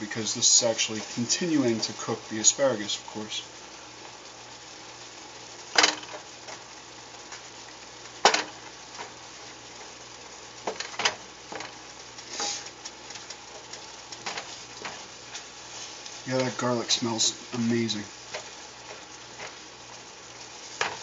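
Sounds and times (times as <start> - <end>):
sauce sizzling: 0.0 - 21.0
spatula scraping metal pan: 12.3 - 12.7.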